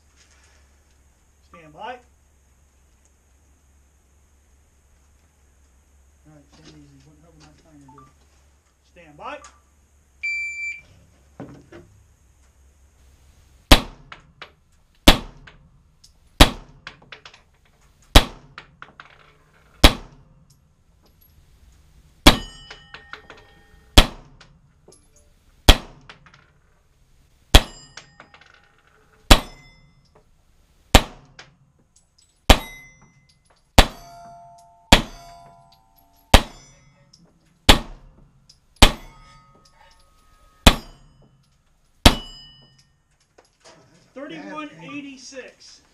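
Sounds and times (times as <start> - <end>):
pistol shots: 13.7 - 14.2, 15.0 - 15.6, 16.4 - 16.9, 18.1 - 18.6, 19.8 - 20.2, 22.2 - 22.6, 24.0 - 24.4, 25.7 - 26.1, 27.5 - 27.8, 29.3 - 29.6, 30.9 - 31.4, 33.8 - 34.2, 34.9 - 35.4, 36.3 - 36.7, 37.7 - 38.1, 38.8 - 39.2, 40.6 - 41.0, 42.0 - 42.4
steel plate ringing: 22.2 - 24.0, 27.6 - 28.5, 29.2 - 30.0, 32.5 - 37.1, 37.7 - 43.0.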